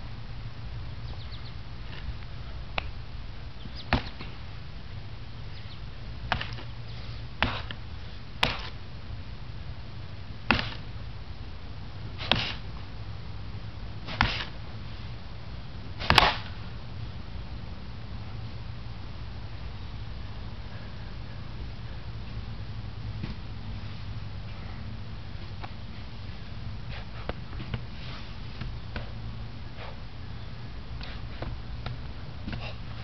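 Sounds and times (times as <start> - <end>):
steady low hum: 0.0 - 33.0
sharp snaps of strikes and kicks: 3.9 - 4.4, 6.3 - 6.7, 7.4 - 7.8, 8.4 - 8.8, 10.5 - 10.9, 12.2 - 12.6, 14.1 - 14.5, 16.0 - 16.6.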